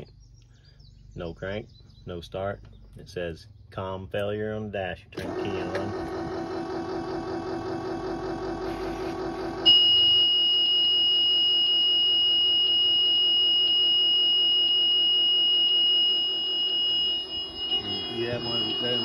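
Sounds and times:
low pulsing hum: 0.0s - 4.0s, 4.8s - 19.0s
high-pitched warning buzzer: 9.6s - 19.0s.

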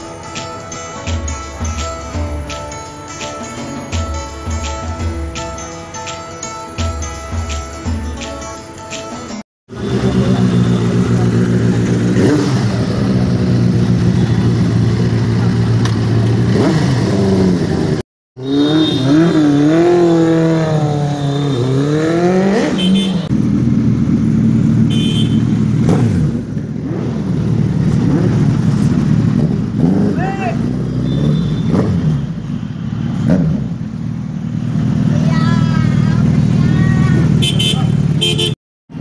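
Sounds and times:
motorcycle engine idling: 9.7s - 16.5s, 22.9s - 29.7s
motorcycle engine revving: 9.7s - 39.0s
second motorcycle idling: 9.8s - 16.5s.

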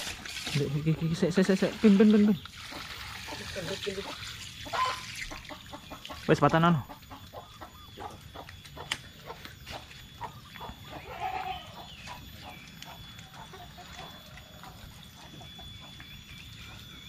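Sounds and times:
chickens clucking: 0.0s - 17.0s
chicken squawk: 4.6s - 5.4s.

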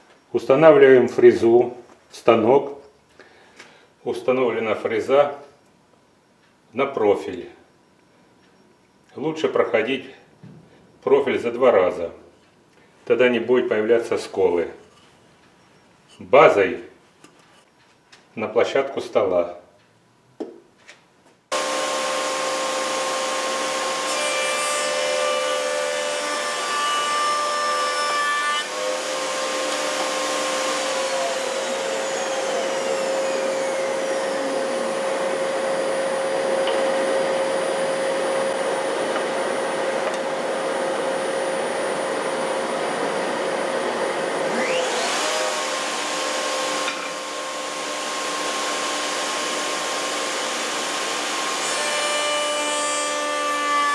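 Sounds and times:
router motor whine: 21.5s - 53.7s
rough wood-cutting noise: 21.5s - 53.9s.

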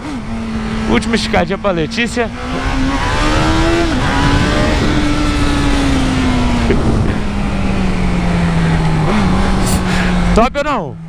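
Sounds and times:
motorcycle engine decelerating: 0.0s - 11.0s
wind rush on microphone: 2.3s - 10.1s.

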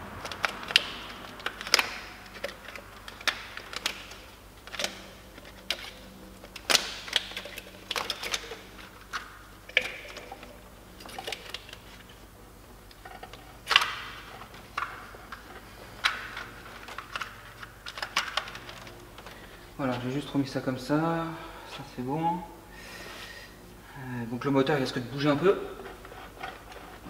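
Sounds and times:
hand tools clicking and knocking: 0.1s - 11.9s.

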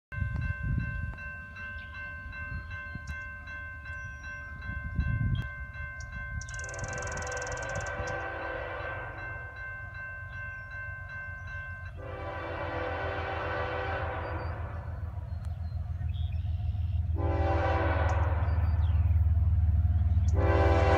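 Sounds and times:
railroad crossing bell ringing: 0.1s - 20.9s
locomotive air horn blasts: 6.6s - 9.6s, 12.0s - 15.2s, 17.0s - 19.0s, 20.3s - 20.9s.

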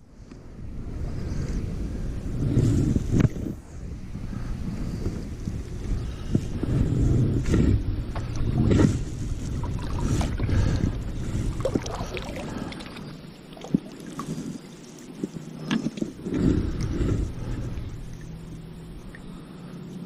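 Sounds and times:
wind rumbling on microphone: 0.0s - 20.0s
kayak paddle splashing in water: 8.1s - 19.4s.

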